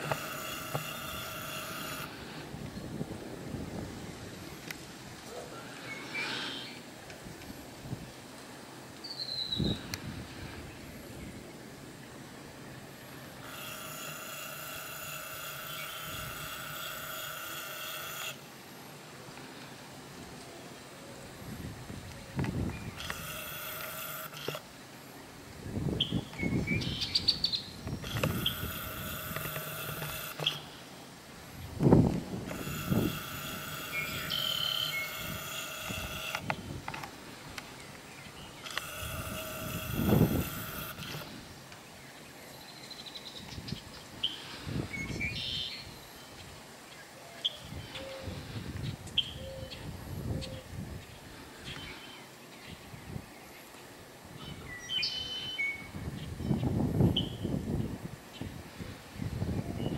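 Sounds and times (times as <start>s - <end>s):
camera zoom motor whine: 0.0s - 2.4s, 13.2s - 18.5s, 22.7s - 24.7s, 27.9s - 30.8s, 32.4s - 36.6s, 38.6s - 41.4s
wind rumbling on microphone: 0.0s - 5.4s, 7.1s - 8.2s, 9.4s - 12.0s, 21.2s - 23.6s, 25.4s - 30.3s, 31.4s - 34.4s, 35.0s - 37.6s, 38.2s - 41.6s, 43.4s - 46.6s, 47.6s - 51.5s, 52.6s - 53.4s, 55.8s - 59.9s
birds chirping: 5.3s - 6.9s, 10.7s - 18.3s, 21.9s - 30.9s, 32.5s - 36.7s.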